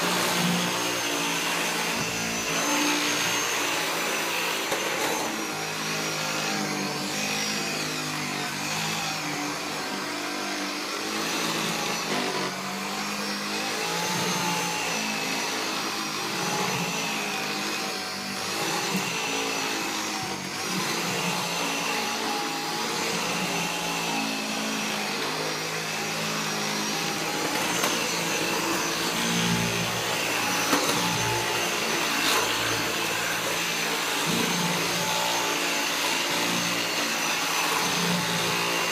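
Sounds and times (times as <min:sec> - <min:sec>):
vacuum cleaner whining: 0:00.0 - 0:38.9.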